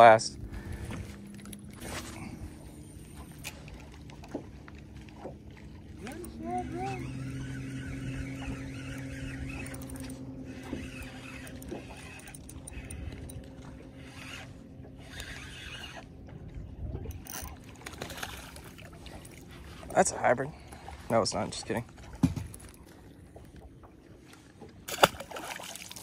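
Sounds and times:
steady low hum: 0.0 - 26.0
spinning reel being cranked: 6.0 - 13.4, 14.0 - 16.1.

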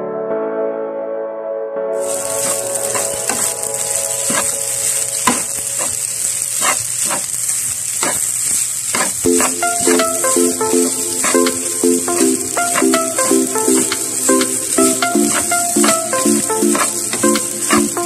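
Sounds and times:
background music: 0.0 - 6.1, 9.3 - 18.0
spatula scraping a pan: 2.0 - 3.5, 4.3 - 4.6, 5.2 - 9.9, 16.7 - 18.0
rice sizzling in a pan: 2.0 - 18.0.

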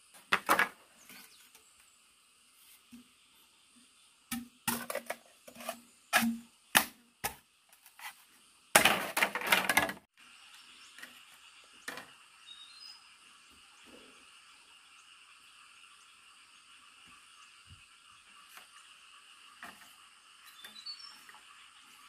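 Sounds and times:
frogs and insects chorus: 8.9 - 22.0.

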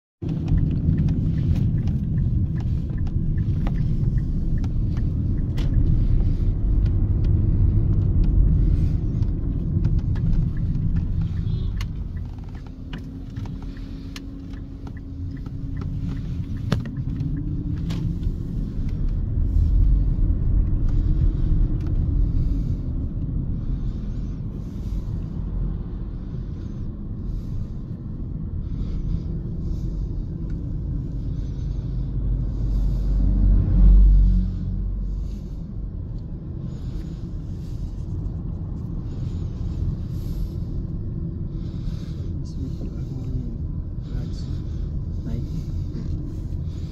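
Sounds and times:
vehicle rumble from on board: 0.1 - 46.9
road and wind noise: 0.2 - 46.9.

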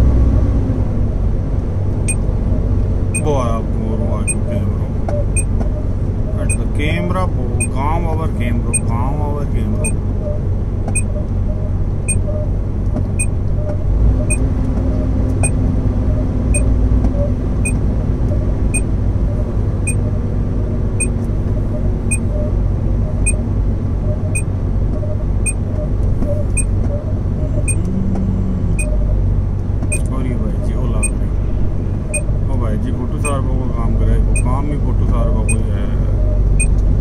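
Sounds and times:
road rumble: 0.0 - 37.0
truck engine running: 0.0 - 37.0.

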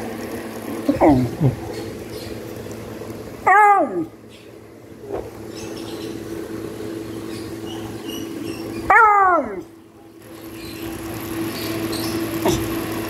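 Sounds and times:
dog barking: 3.4 - 4.1, 7.6 - 8.1.

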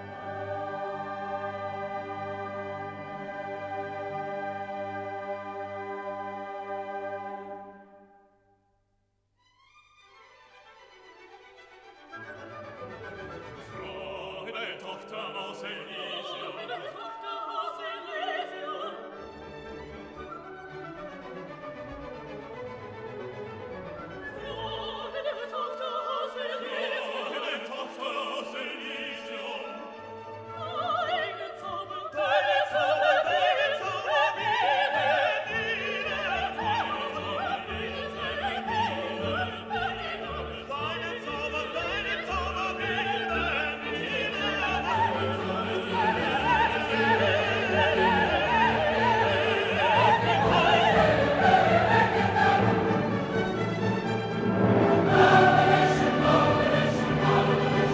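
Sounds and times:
operatic singing: 0.0 - 7.8, 13.0 - 20.0, 24.0 - 57.9
orchestral music: 0.0 - 8.3, 9.6 - 57.9.

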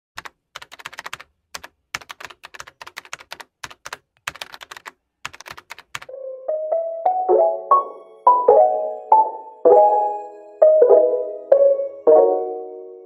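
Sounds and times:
keyboard typing clicks: 0.2 - 6.1
light piano melody: 6.1 - 13.0.

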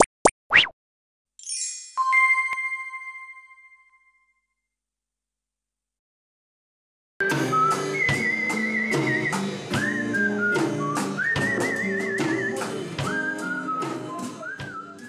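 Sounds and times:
drum kit with cymbals: 7.2 - 15.0
whistled melody: 7.2 - 15.0.

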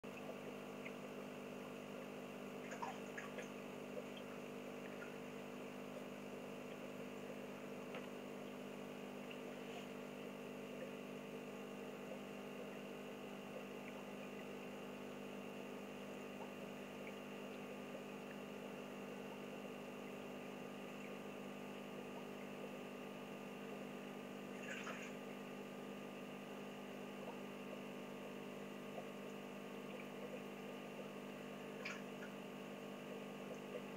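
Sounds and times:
aquarium pump humming: 0.0 - 33.9
faint water drips: 0.1 - 8.6, 12.0 - 15.4, 16.0 - 18.8
water trickling: 0.1 - 22.8.

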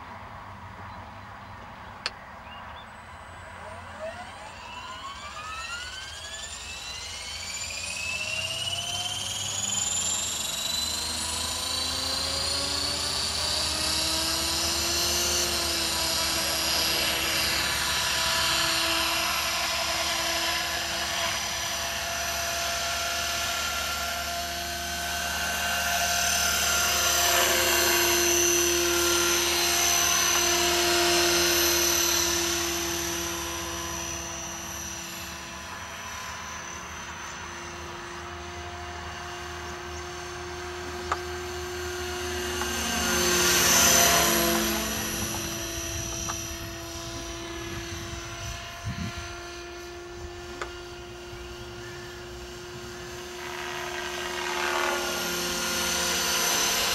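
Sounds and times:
electric motor and gear whine: 1.4 - 56.9
helicopter rotor noise: 1.6 - 56.9.

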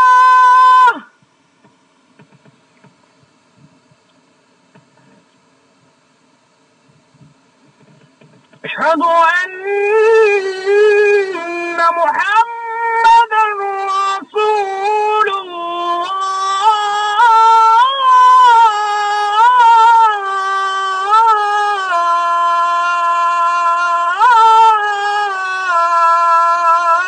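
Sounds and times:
man chanting call to prayer: 8.6 - 27.0.

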